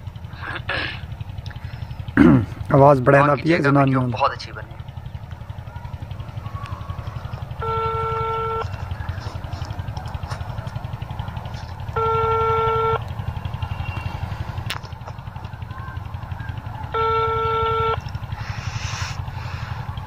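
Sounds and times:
telephone ringback beeps: 7.6 - 8.6, 12.0 - 13.0, 16.9 - 18.1.

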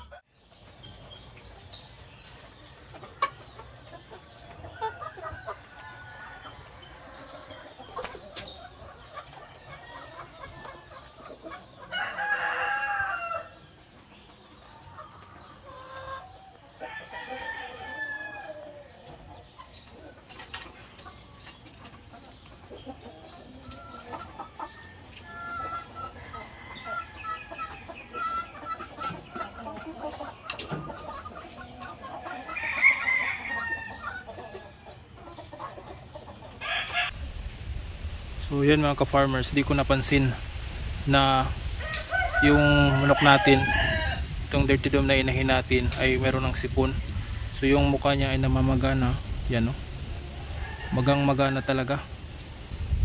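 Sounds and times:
chickens clucking: 0.0 - 53.0
rooster crowing: 41.8 - 44.3.

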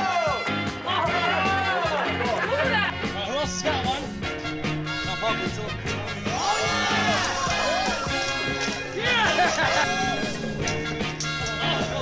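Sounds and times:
upbeat swing music: 0.0 - 12.0.

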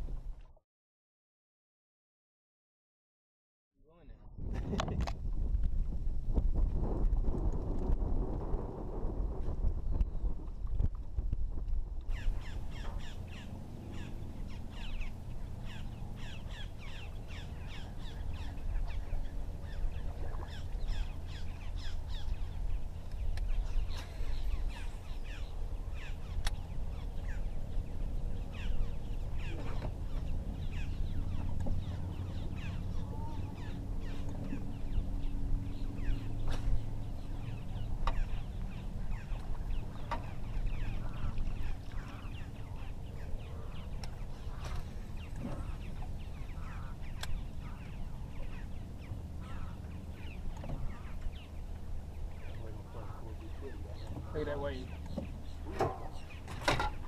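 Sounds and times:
low rumble: 4.0 - 57.0
birds chirping: 12.1 - 57.0.

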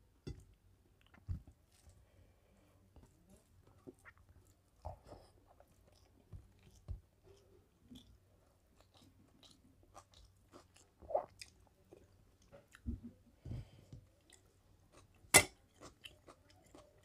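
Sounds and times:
wet chewing and mouth sounds: 3.7 - 13.2, 13.9 - 17.0.

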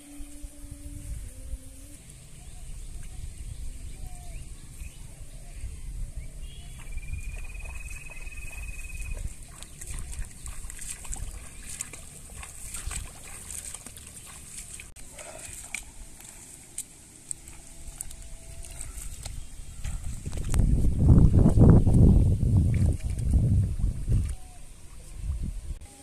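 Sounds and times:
water sloshing: 6.7 - 22.0.

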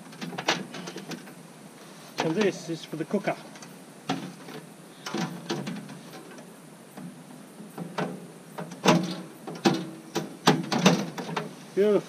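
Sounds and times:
metal clanking and rattling: 3.5 - 11.6.

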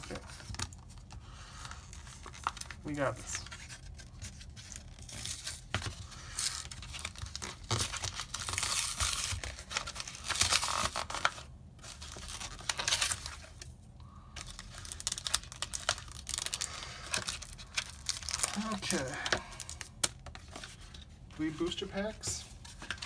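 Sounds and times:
crinkling plastic: 14.4 - 23.0.

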